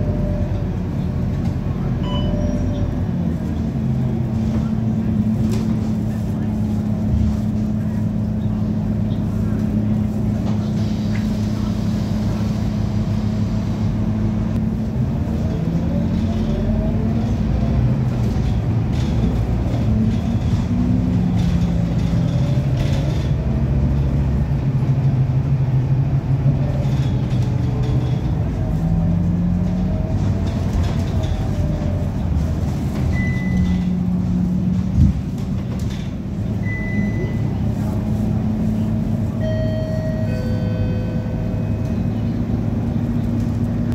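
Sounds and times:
bus engine and gearbox running: 0:00.0 - 0:43.9
short high beep: 0:36.6 - 0:37.5.

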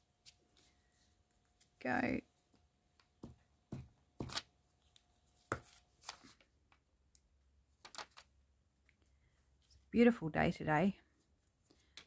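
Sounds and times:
paper handling: 0:04.2 - 0:06.6.

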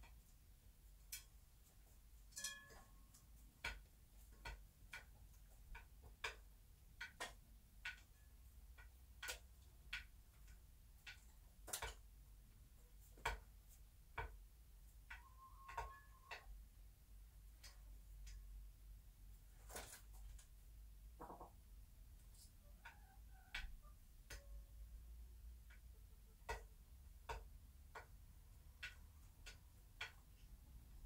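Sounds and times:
soft hen call: 0:15.2 - 0:16.4.

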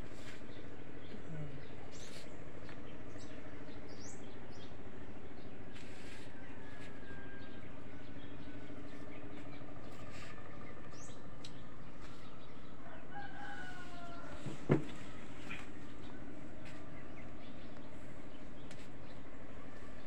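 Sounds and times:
steady low hum: 0:00.0 - 0:20.0
rooster crowing: 0:06.3 - 0:08.1, 0:12.6 - 0:15.4.

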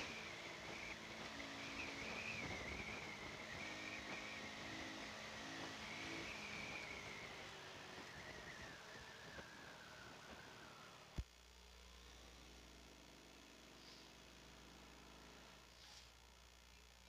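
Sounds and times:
wind and road noise: 0:00.0 - 0:11.2
high wavering whine: 0:00.0 - 0:17.0
low motorcycle engine hum: 0:00.0 - 0:17.0.

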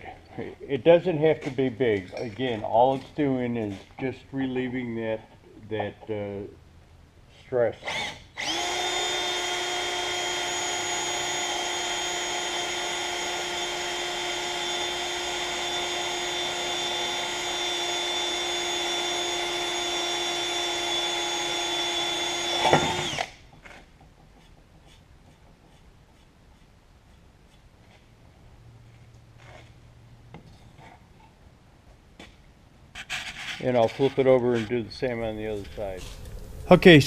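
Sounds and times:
cordless drill drilling into metal: 0:07.8 - 0:23.4.

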